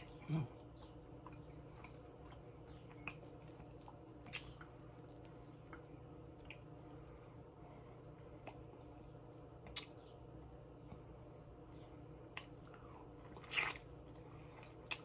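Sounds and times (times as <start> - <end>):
faint low hum: 0.0 - 15.0
wet chewing: 0.0 - 15.0
lip smacks: 0.8 - 7.1, 9.6 - 10.0, 12.3 - 15.0.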